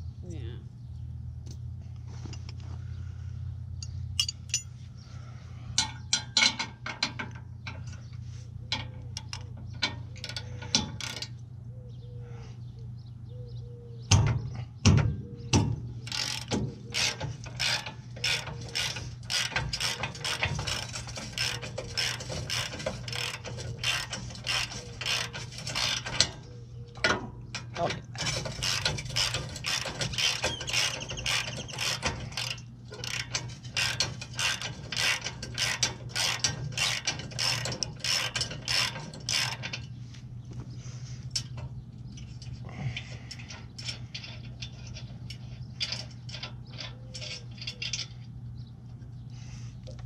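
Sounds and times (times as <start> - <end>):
ratchet wrench clicking: 16.0 - 26.4, 28.2 - 39.9.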